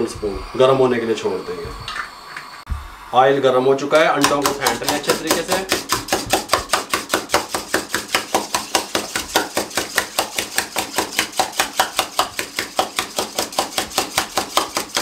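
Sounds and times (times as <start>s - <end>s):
whisk clicking against bowl: 4.2s - 15.0s.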